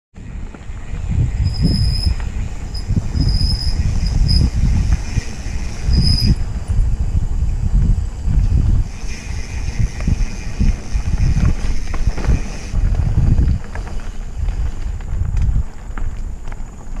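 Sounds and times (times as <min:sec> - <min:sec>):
mountain bike rolling on dirt trail: 0:00.2 - 0:17.0
wind buffeting microphone: 0:00.2 - 0:17.0
bike brakes squealing: 0:00.8 - 0:06.5, 0:08.9 - 0:12.8.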